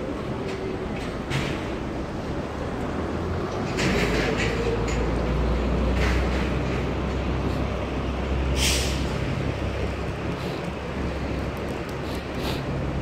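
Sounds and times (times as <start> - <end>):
bus diesel engine rumble: 0.0 - 13.0
street traffic: 0.0 - 13.0
air brake hiss: 8.5 - 9.2.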